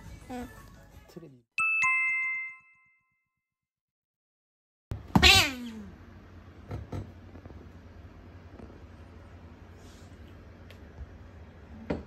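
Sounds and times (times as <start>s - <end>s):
two-tone chime: 1.6s - 3.3s.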